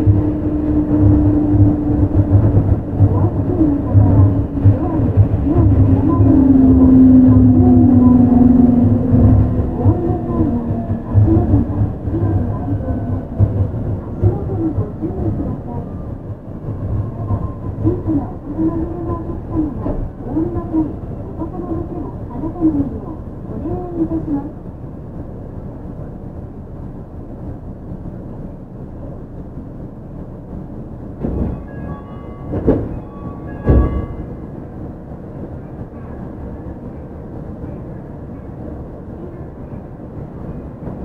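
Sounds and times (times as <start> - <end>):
train inverter tones: 0.0 - 24.6, 31.1 - 37.9.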